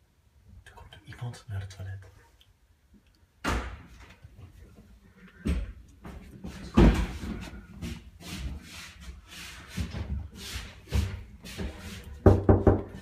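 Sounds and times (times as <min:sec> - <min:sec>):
knocks and thumps: 0:05.4 - 0:07.6, 0:10.9 - 0:13.0.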